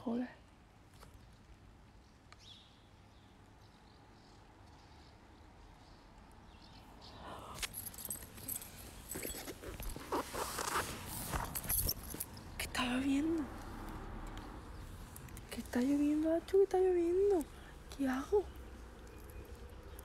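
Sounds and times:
faint low outdoor hum: 0.0 - 20.0
phone microphone crackling and rustling: 7.6 - 12.5.

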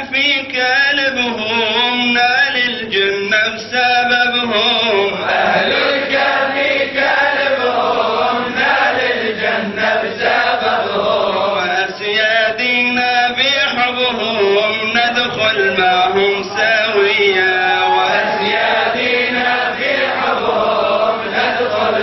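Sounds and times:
man chanting: 0.0 - 5.3, 11.4 - 18.8.

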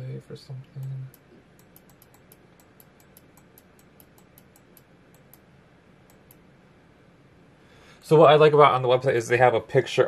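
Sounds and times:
quick computer clicking: 0.8 - 5.4.

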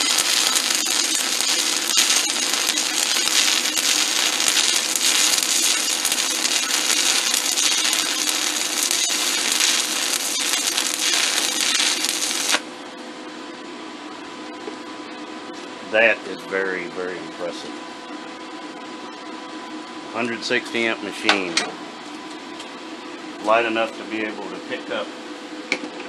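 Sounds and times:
welding arc crackling hiss: 0.0 - 12.7
low hum: 0.0 - 12.9.

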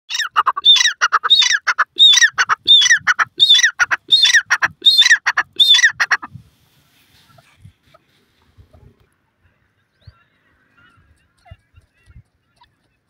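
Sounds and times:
francolin calling: 0.1 - 6.1.

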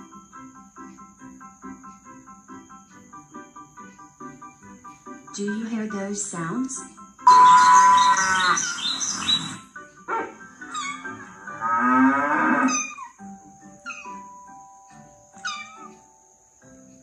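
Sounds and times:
background music: 0.0 - 17.0
animal calls: 7.3 - 14.4, 15.4 - 16.0.

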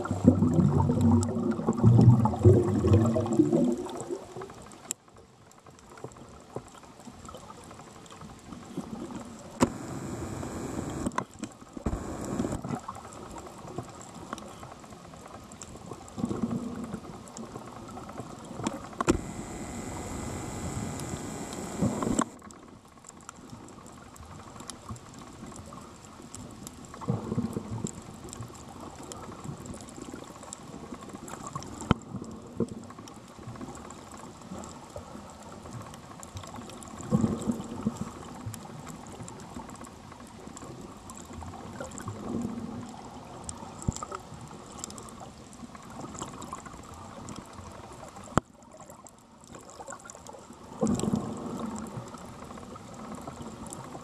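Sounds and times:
muffled underwater water noise: 0.0 - 54.0
sharp clicks: 9.6 - 12.8, 18.8 - 22.4.

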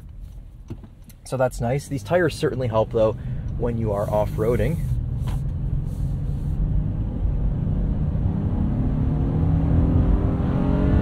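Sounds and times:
tyre and road noise: 2.1 - 6.9
car engine accelerating: 2.3 - 11.0.

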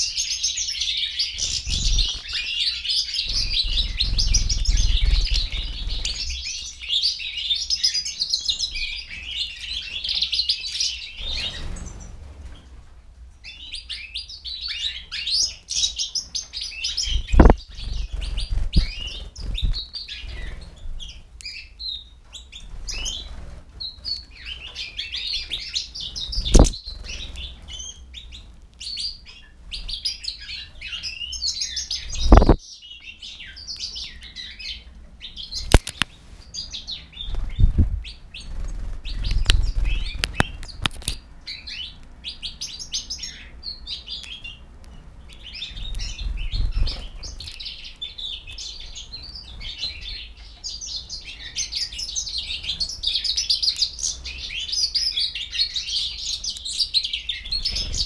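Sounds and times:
goldfinches twittering: 13.4 - 21.8, 22.4 - 32.6, 33.2 - 58.0.

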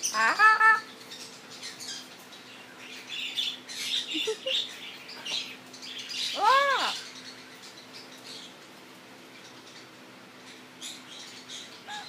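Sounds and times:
parrot chirping and squeaking: 0.0 - 2.0.

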